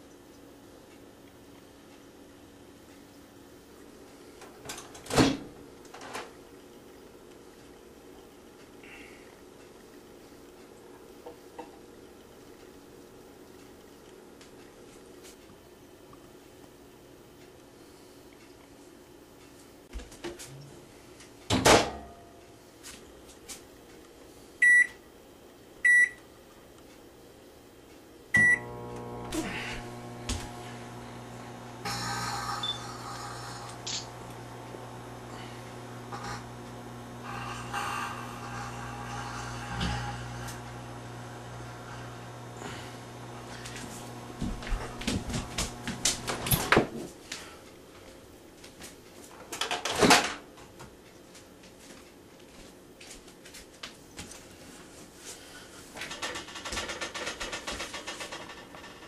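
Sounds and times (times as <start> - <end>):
microwave running hum: 0.0 - 17.8, 23.8 - 47.6
microwave keypad beeping: 24.6 - 25.0, 25.8 - 26.2, 28.4 - 28.8, 31.9 - 33.0
microwave oven humming: 27.2 - 47.5
sharp crack and crackling hiss: 31.8 - 34.5.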